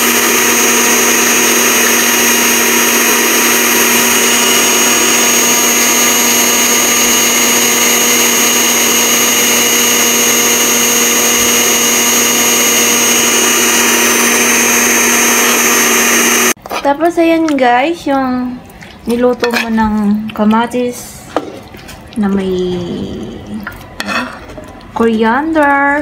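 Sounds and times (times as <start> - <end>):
blender grinding seeds: 0.0 - 16.6.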